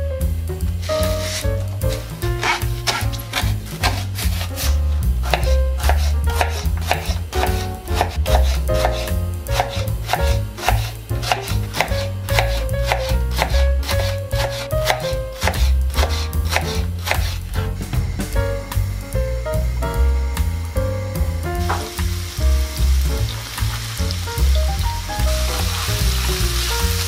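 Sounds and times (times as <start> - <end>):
background music with bass: 0.0 - 27.0
knife chopping on cutting board: 1.0 - 17.4.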